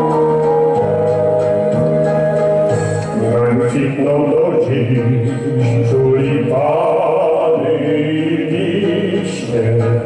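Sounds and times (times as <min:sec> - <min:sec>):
amplified instrumental accompaniment: 0:00.0 - 0:10.0
man singing into a microphone: 0:03.0 - 0:10.0.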